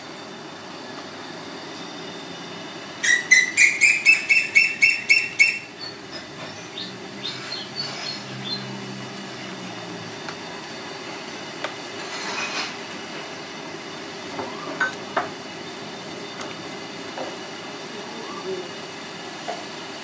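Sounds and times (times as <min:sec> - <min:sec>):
pot boiling hiss: 0:00.0 - 0:20.0
bird chirping: 0:03.0 - 0:08.7.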